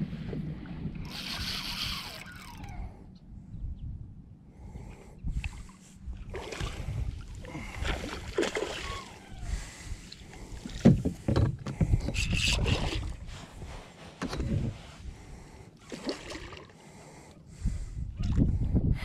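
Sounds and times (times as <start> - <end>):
fish splashing in water: 7.6 - 9.4, 15.8 - 16.7.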